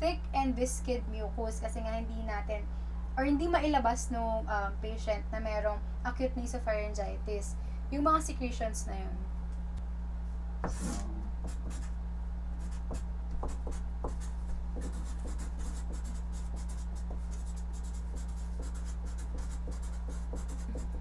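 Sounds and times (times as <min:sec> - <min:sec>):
steady low hum: 0:00.0 - 0:21.0
marker pen writing on paper: 0:10.6 - 0:11.9, 0:12.6 - 0:21.0.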